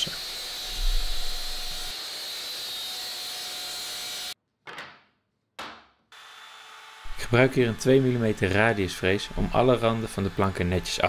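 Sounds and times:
miter saw whining: 0.0 - 4.4, 6.2 - 11.0
saw blade cutting plywood: 0.0 - 4.4, 6.1 - 11.0.

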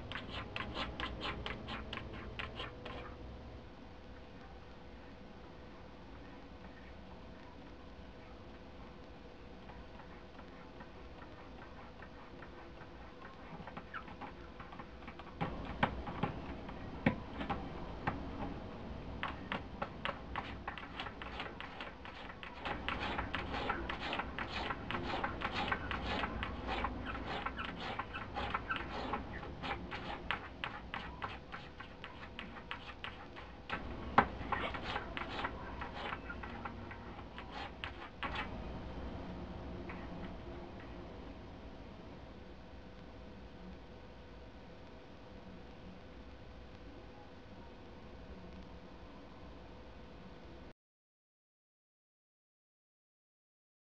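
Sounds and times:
cat claws scratching cardboard: 0.0 - 3.2, 10.8 - 17.6, 19.2 - 38.6.

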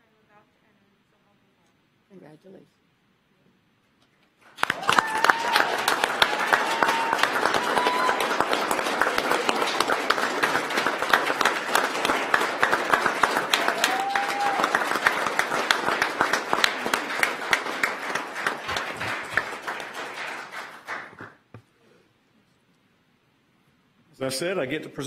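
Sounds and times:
audience applauding: 4.4 - 21.5.

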